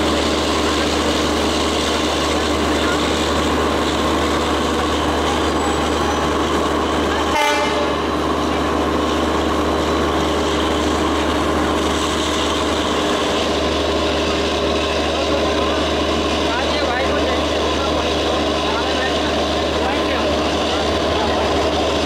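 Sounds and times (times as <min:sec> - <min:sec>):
diesel locomotive engine running: 0:00.0 - 0:22.0
brief horn toot: 0:07.3 - 0:08.0.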